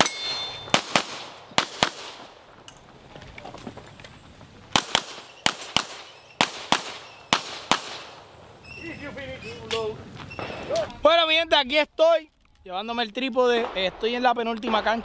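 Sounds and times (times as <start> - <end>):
pistol shots in quick pairs: 0.0 - 2.3, 4.7 - 8.2.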